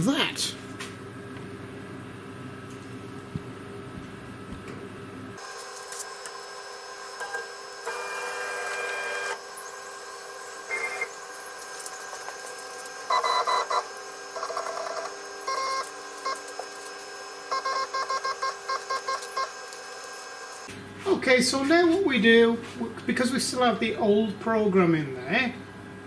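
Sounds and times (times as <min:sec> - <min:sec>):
stepper motors whining: 0:05.4 - 0:20.7.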